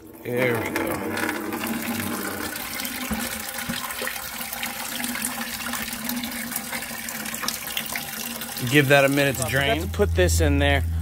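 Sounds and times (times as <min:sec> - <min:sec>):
coolant dripping into plastic bucket: 0:00.0 - 0:10.1.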